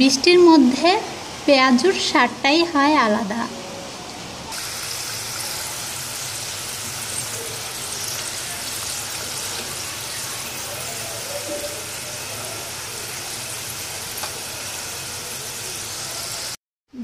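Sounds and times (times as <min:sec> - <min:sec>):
hot oil sizzling: 0:04.4 - 0:16.6.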